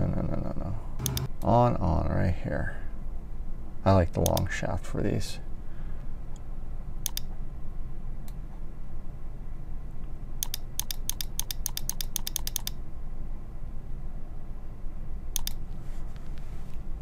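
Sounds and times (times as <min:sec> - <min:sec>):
mouse button clicking: 0:01.0 - 0:01.3, 0:07.0 - 0:07.3, 0:15.4 - 0:15.6.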